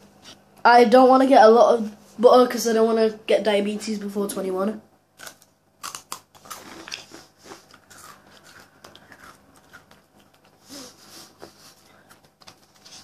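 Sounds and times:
breadstick crunching and chewing: 5.2s - 10.6s.

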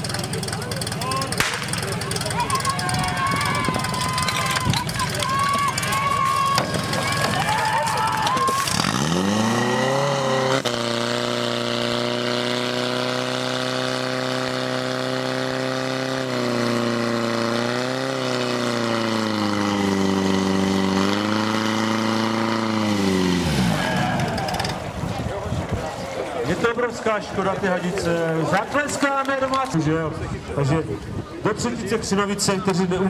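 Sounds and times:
pump engine revving: 0.0s - 25.0s.

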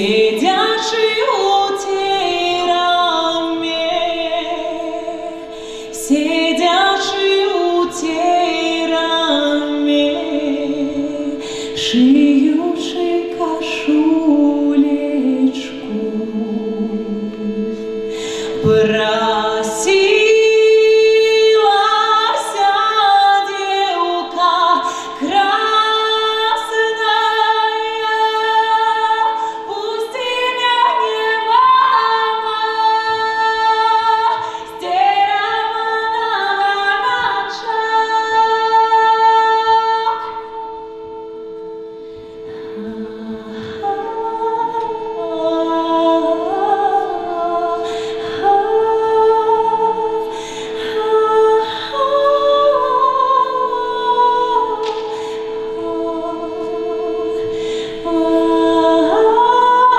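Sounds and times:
shruti box drone: 0.0s - 59.9s
woman singing: 0.0s - 59.9s.

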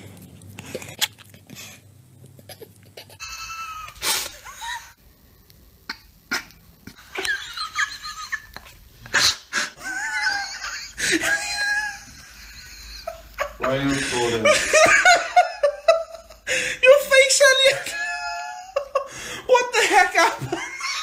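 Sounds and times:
person giggling squeakily: 2.5s - 4.9s.

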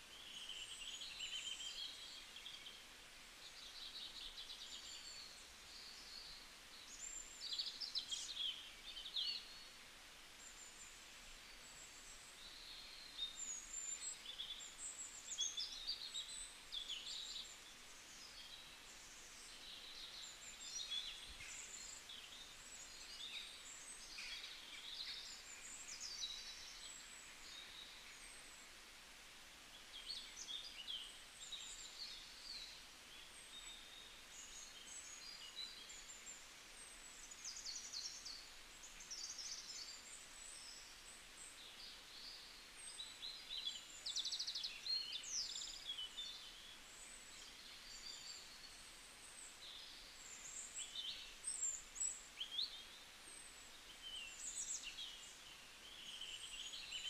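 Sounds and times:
low steady hiss: 0.0s - 57.0s.

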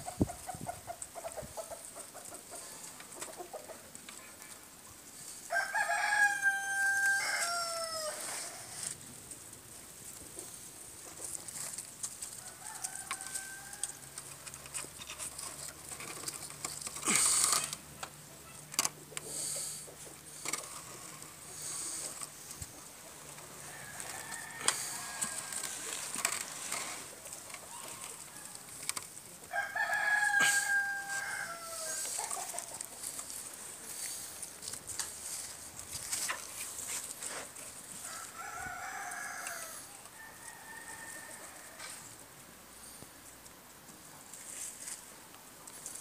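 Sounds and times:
rustling: 0.0s - 46.0s
rooster crowing: 5.5s - 8.8s, 12.4s - 14.2s, 23.6s - 26.1s, 29.5s - 32.4s, 38.0s - 42.0s.

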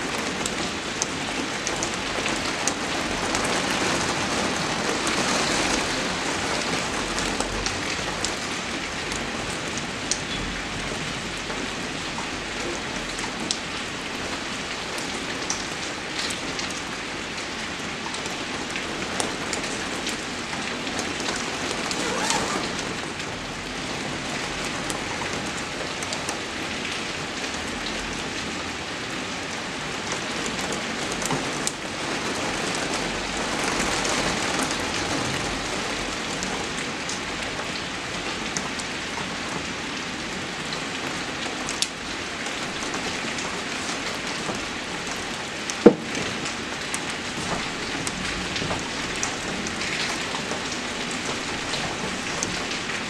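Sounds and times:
steady rain falling: 0.0s - 53.0s
raindrop splats: 42.7s - 53.0s.

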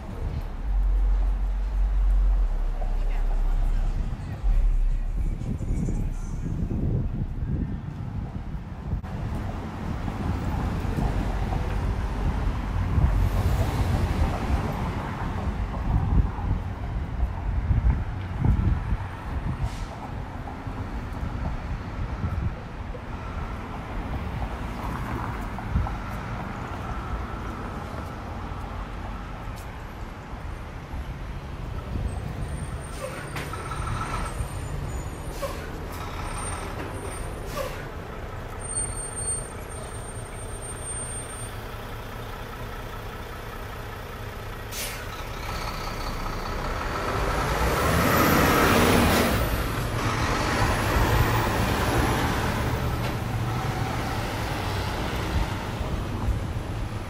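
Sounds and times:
low rumble of vehicle engines: 0.0s - 57.0s.

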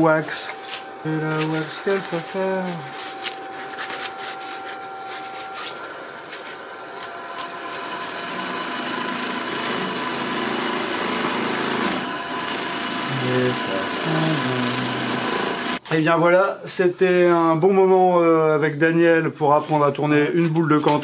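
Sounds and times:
lathe motor whine: 0.0s - 15.8s
cloth rustling: 0.6s - 6.6s
buffing wheel rubbing wood: 1.3s - 15.8s.

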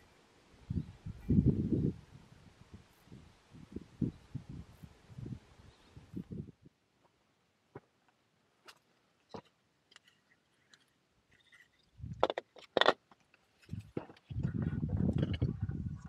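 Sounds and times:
skull handling clicks and knocks: 8.1s - 14.5s.

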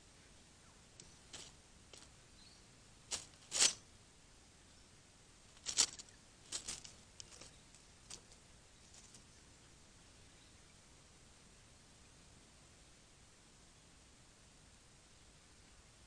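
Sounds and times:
dry leaves and twigs rustling: 0.9s - 3.9s, 5.5s - 9.5s.

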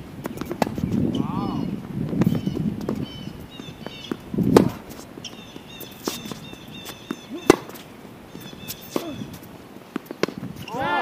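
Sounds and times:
footsteps on court: 0.1s - 1.2s, 1.8s - 11.0s
ball bounces: 3.6s - 7.8s
tennis racket hitting ball: 3.6s - 11.0s.

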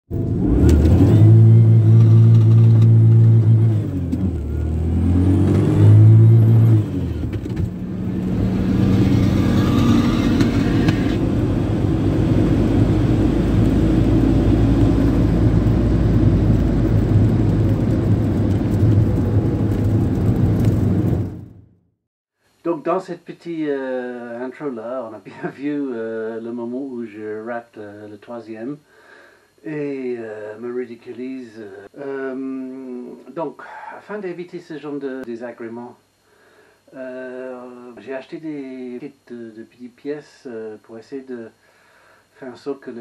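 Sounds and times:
car engine revving high: 0.1s - 21.4s
low car rumble: 0.1s - 21.7s.

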